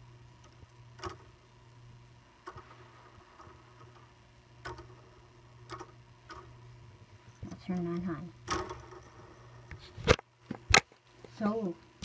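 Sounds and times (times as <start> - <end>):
faint low hum: 0.0 - 12.0
sharp plastic clicks: 4.6 - 5.0.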